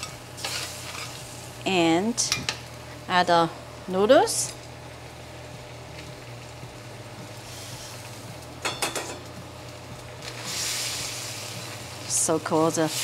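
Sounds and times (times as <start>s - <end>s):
noodles sizzling in a wok: 0.0s - 13.0s
clinks in a wok: 8.6s - 9.3s.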